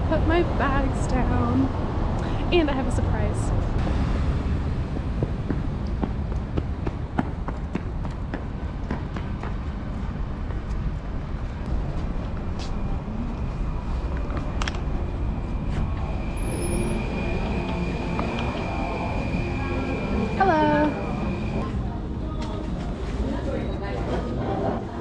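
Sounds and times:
voices: 0.0s - 3.6s, 14.1s - 25.0s
steady high tone: 11.8s - 22.3s.

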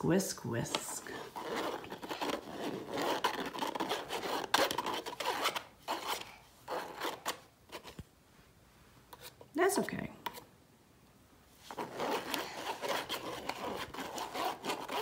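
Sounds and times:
whisk scratching in mesh sieve: 1.0s - 7.9s, 11.6s - 15.0s.

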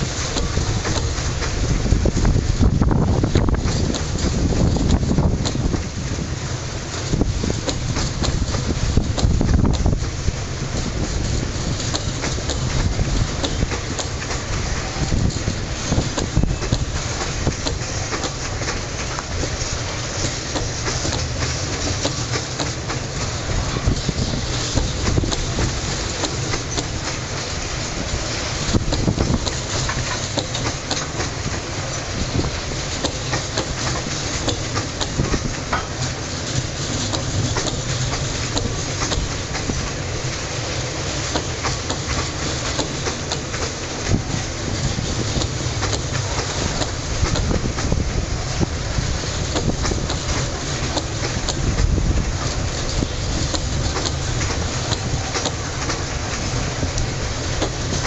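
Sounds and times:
train wheels rumbling on rails: 0.0s - 58.0s
wheels clanking over rail joints: 0.0s - 58.0s.

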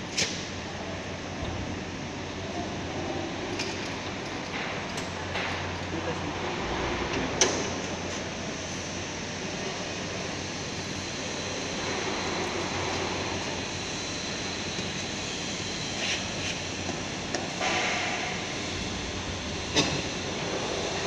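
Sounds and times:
rushing room noise: 0.0s - 21.0s
low hum: 18.3s - 21.0s.

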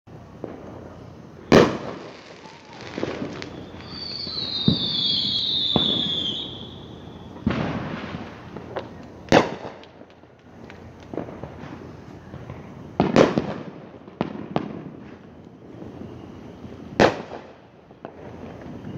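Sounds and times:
fireworks pops and crackles: 0.1s - 18.9s
fireworks bangs: 0.2s - 18.9s
firework whistle: 0.4s - 9.9s, 10.5s - 18.9s.

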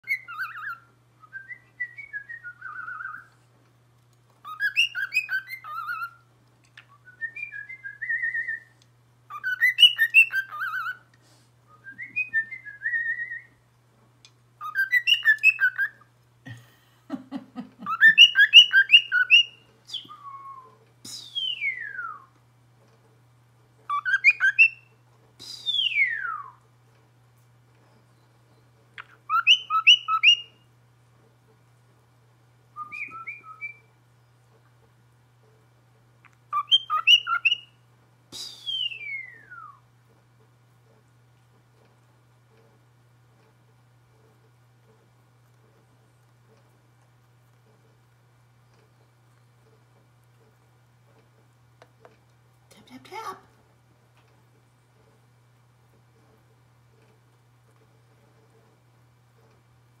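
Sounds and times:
cockatiel whistling: 0.0s - 3.3s, 4.4s - 6.2s, 9.3s - 11.1s, 11.7s - 13.6s, 14.6s - 16.1s, 17.8s - 22.3s, 23.9s - 24.9s, 25.6s - 26.6s, 29.0s - 30.6s, 32.8s - 33.9s, 36.5s - 37.8s, 38.4s - 39.8s.

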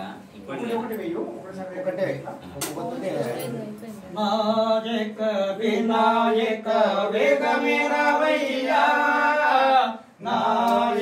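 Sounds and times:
voices singing a devotional song: 3.1s - 11.0s.

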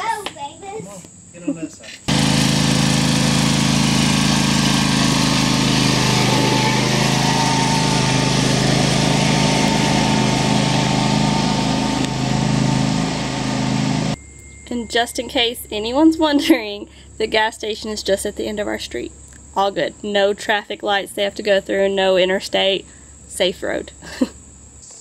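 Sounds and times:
lawn tractor engine running: 2.1s - 14.2s.

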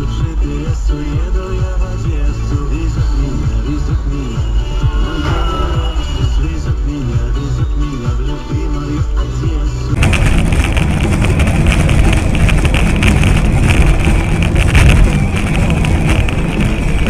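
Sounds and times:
electronic background music: 0.0s - 17.0s
vehicle engine and road noise: 0.0s - 17.0s
wind buffeting microphone: 10.0s - 17.0s.

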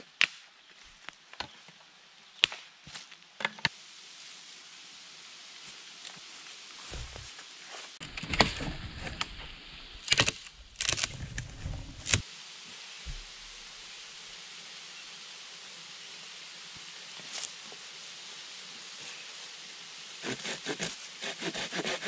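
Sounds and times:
faint outdoor hiss: 0.0s - 22.0s
branch rustling through grass: 6.1s - 12.2s, 13.0s - 13.9s.

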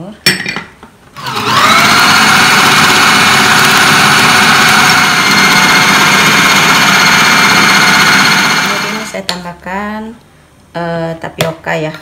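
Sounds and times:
blade grinding meat: 1.2s - 9.2s
food processor motor whining: 1.2s - 9.2s.

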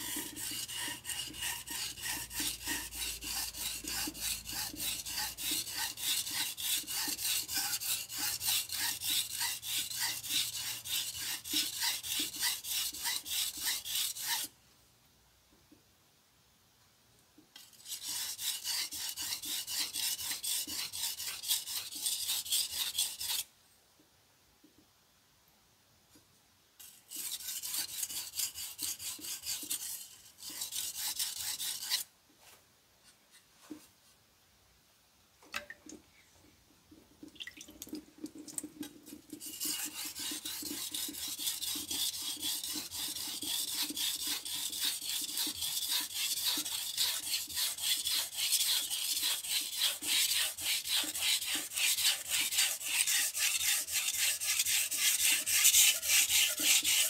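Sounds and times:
knife scraping on whetstone: 0.0s - 14.5s, 17.6s - 23.5s, 26.8s - 32.1s, 38.8s - 57.0s.

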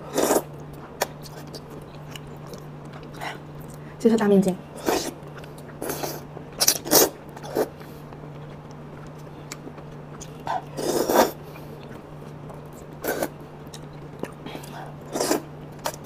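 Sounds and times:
steady low hum: 0.0s - 16.0s
wet slurping and chewing: 4.8s - 16.0s.

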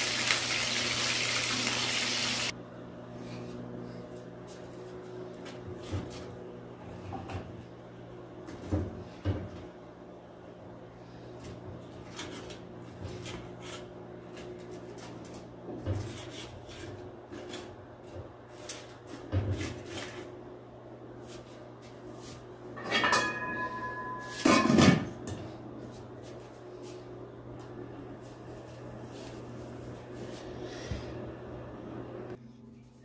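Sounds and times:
metal clang ringing: 22.8s - 25.0s.

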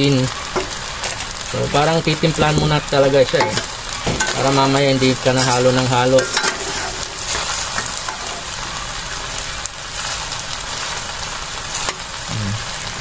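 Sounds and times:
food sizzling in a metal pan: 0.0s - 13.0s
spoon scraping a pan: 2.5s - 8.8s.

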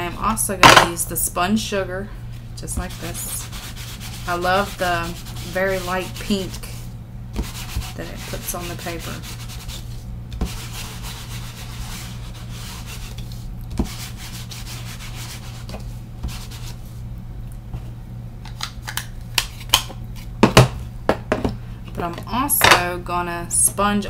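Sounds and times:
ink pad scraping on paper: 2.7s - 17.0s.

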